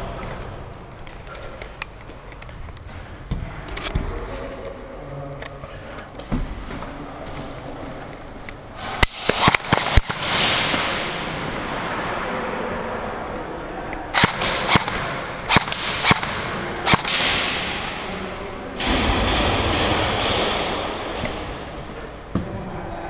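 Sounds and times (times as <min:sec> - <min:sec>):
airsoft gunfire cracks echoing: 0:09.0 - 0:11.5, 0:14.2 - 0:18.0
loud rush of noise: 0:09.4 - 0:13.2.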